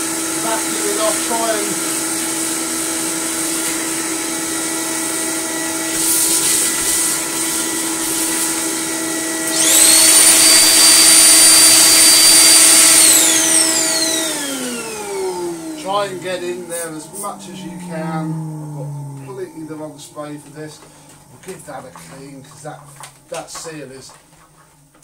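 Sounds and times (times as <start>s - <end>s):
wet-and-dry vacuum running: 0.0s - 25.0s
high whine: 13.1s - 24.3s.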